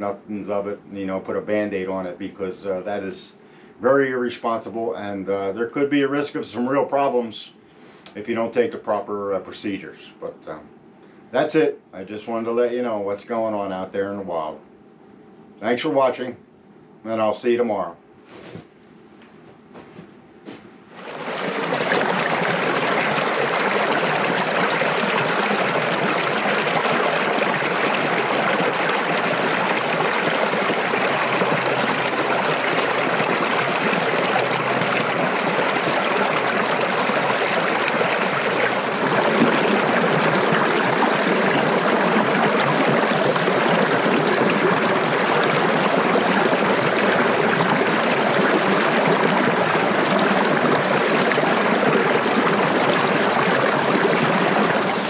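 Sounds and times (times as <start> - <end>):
stream rushing over rocks: 21.0 - 55.0.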